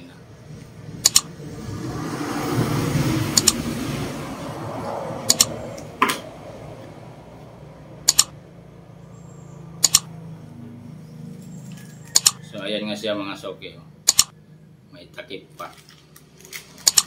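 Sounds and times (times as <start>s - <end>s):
sharp clicks: 1.0s - 1.3s, 3.4s - 3.6s, 5.3s - 5.9s, 8.0s - 8.4s, 9.8s - 10.1s, 12.1s - 12.4s, 14.1s - 14.4s.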